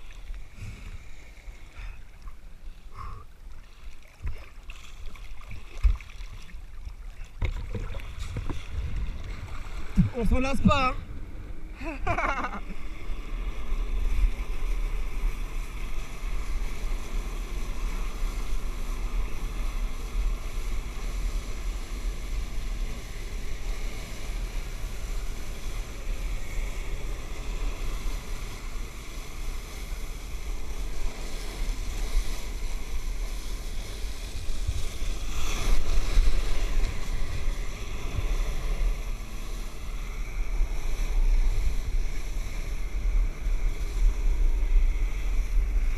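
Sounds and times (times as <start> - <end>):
wind buffeting microphone: 7.3 - 12.6.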